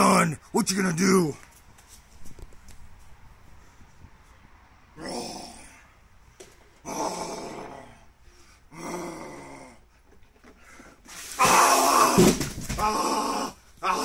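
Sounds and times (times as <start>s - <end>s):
man growling: 5.0s - 5.8s, 6.8s - 9.9s, 12.8s - 14.0s.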